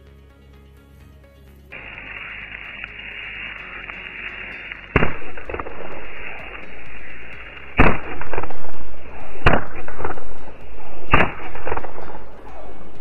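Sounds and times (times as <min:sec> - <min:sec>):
burning powder hissing: 0:01.7 - 0:11.6
firecracker bangs: 0:04.9 - 0:06.6, 0:07.6 - 0:08.7, 0:11.0 - 0:12.2.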